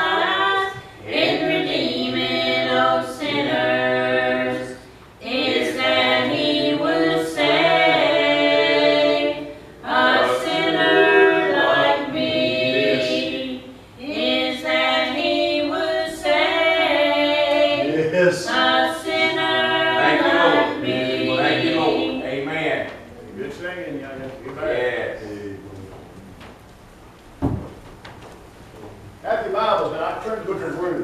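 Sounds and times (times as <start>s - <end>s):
women singing a hymn: 0.0s - 22.5s.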